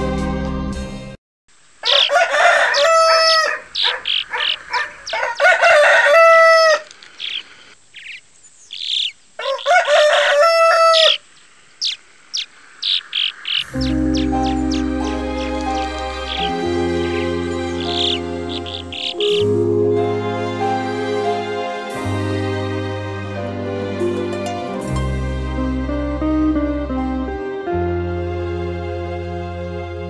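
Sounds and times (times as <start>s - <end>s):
rooster crowing: 1.8s - 7.4s, 8.8s - 11.2s, 12.8s - 19.3s
small birds chirping: 1.8s - 19.5s.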